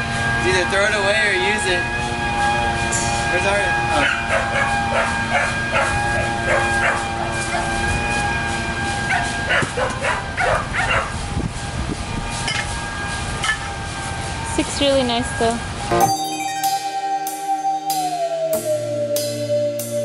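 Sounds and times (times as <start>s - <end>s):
dog barking: 4.0s - 7.0s, 9.5s - 11.2s
background music with held notes: 15.9s - 20.0s.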